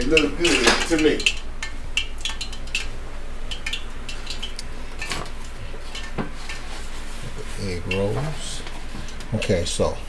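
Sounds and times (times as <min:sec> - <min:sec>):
clicks and taps on metal sheet: 0:00.0 - 0:02.9, 0:03.5 - 0:05.2
steady low hum: 0:00.0 - 0:10.0.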